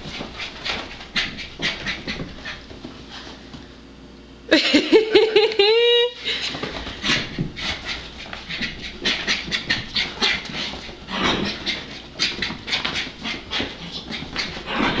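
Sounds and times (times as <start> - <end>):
dog panting: 0.0 - 2.9, 6.3 - 15.0.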